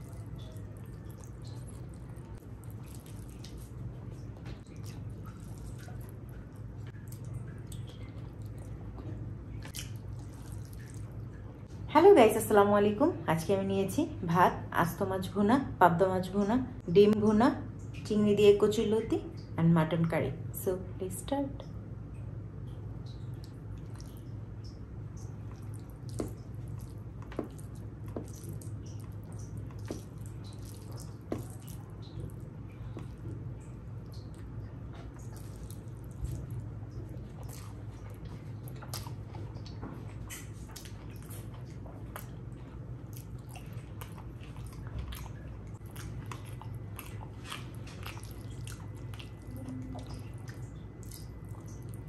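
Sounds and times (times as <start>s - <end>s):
wet squishy eating: 0.0s - 11.9s, 22.6s - 52.0s
steady low hum: 0.0s - 52.0s
sharp wet smacks: 9.6s - 11.2s, 35.2s - 42.4s.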